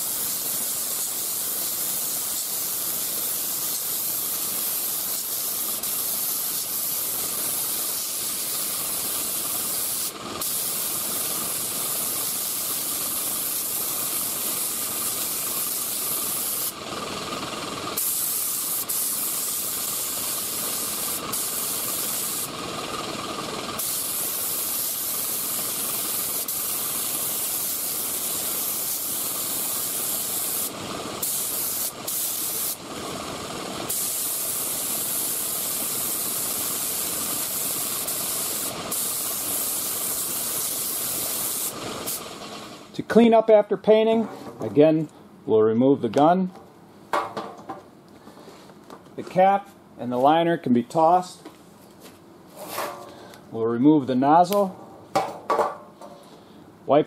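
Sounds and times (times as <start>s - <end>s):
spray gun hissing: 0.0s - 42.9s.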